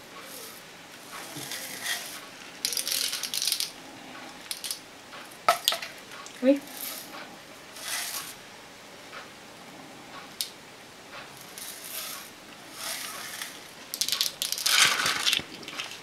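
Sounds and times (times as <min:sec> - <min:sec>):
sprinkles rustling: 0:01.2 - 0:03.7, 0:12.8 - 0:16.0.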